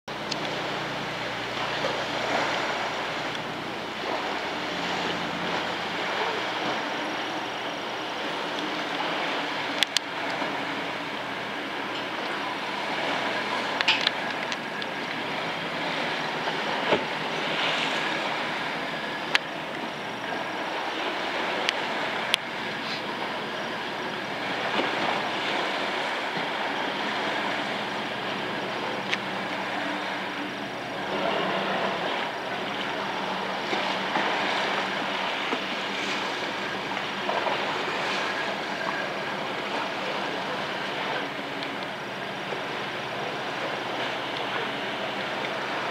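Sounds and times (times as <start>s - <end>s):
wind: 0.0s - 45.9s
low steady hum: 0.1s - 45.9s
water lapping against shore: 0.1s - 45.9s.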